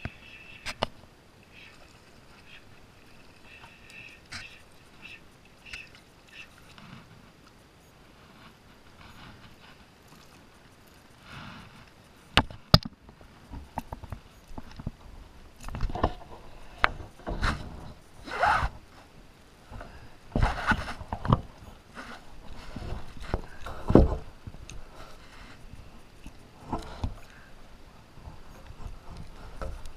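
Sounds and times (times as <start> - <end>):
scraping and rustling: 15.6 - 19.1, 19.7 - 27.4.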